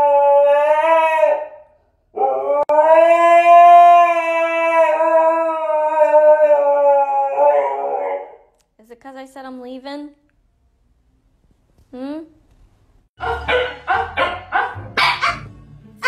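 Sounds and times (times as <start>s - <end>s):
dog howling: 0.0s - 1.6s, 2.2s - 8.4s.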